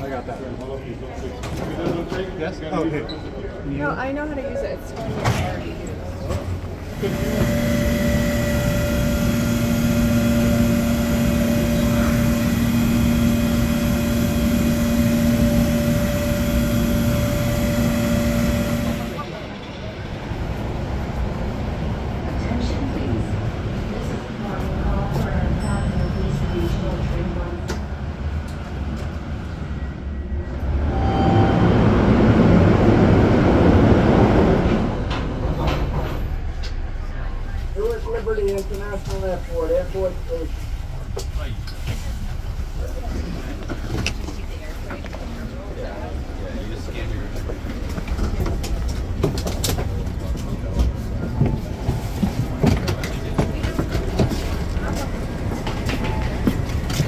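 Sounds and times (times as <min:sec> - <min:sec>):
commuter train rumbling: 0:00.0 - 0:57.0
large machinery humming: 0:06.3 - 0:20.6, 0:28.5 - 0:57.0.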